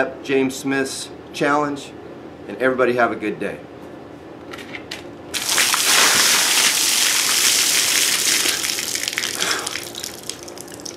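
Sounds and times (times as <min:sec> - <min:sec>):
water pouring and splattering: 0:05.4 - 0:10.9.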